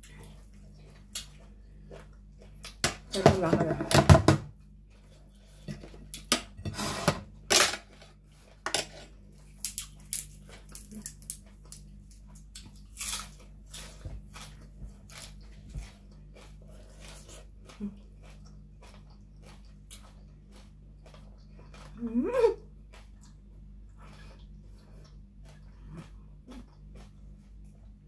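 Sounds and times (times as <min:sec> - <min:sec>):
food crunching: 0:07.8 - 0:28.0
wet chewing clicks: 0:14.2 - 0:22.0.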